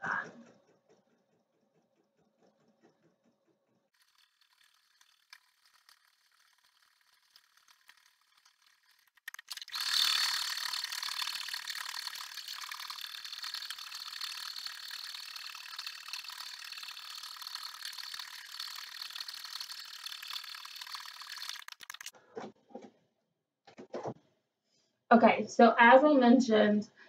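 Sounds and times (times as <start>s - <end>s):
embroidery machine needle clatter: 4.0s - 22.2s.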